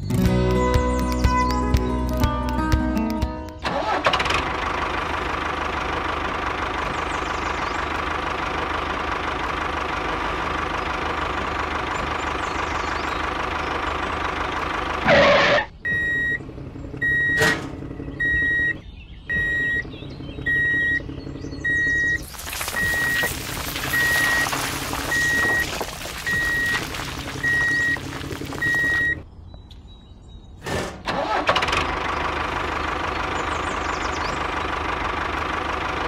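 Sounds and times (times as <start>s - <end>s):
reversing alarm beeping: 15.1s - 16.4s, 17.0s - 17.6s, 18.2s - 23.3s, 23.9s - 28.0s, 28.6s - 29.2s.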